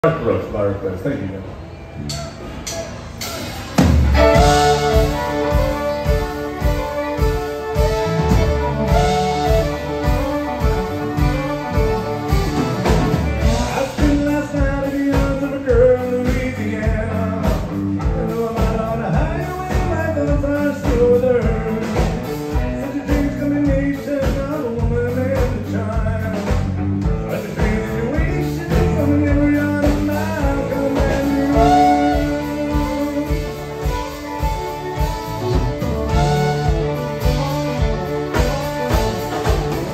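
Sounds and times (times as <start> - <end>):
bass: 0.0 - 39.9
acoustic guitar: 2.1 - 39.9
drum kit steady beat: 2.1 - 39.9
electric guitar: 3.2 - 39.9
fiddle: 3.8 - 17.3, 27.3 - 39.9
man singing lead vocal: 13.4 - 33.7.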